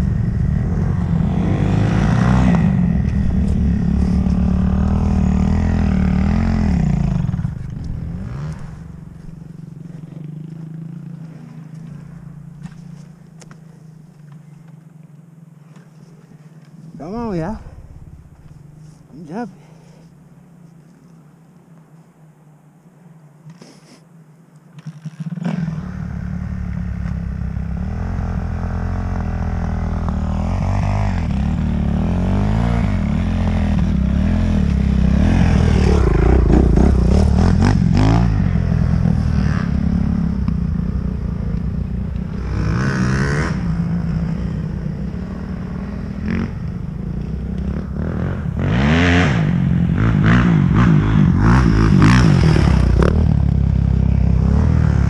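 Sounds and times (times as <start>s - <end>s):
dirt bike engine revving: 0.0s - 12.8s, 24.8s - 55.0s.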